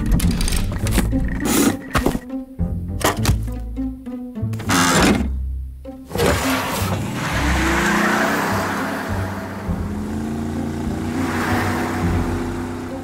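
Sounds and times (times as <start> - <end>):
background music: 0.0 - 13.0
truck engine passing by: 6.1 - 13.0.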